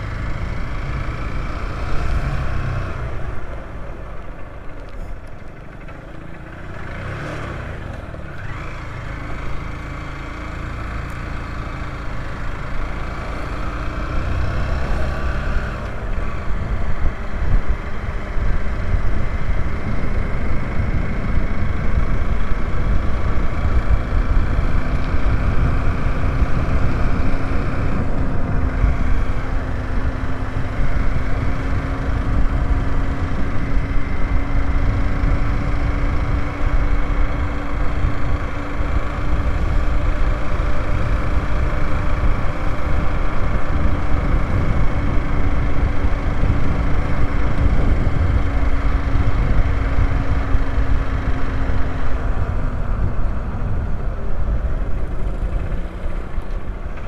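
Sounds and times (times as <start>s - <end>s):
motorcycle engine running: 0.0s - 57.0s
wind rushing over microphone: 14.0s - 57.0s.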